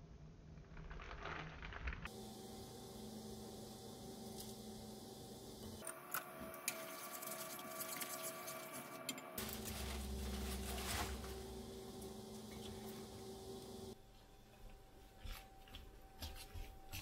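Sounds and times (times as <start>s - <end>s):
steady low hum: 2.1s - 17.0s.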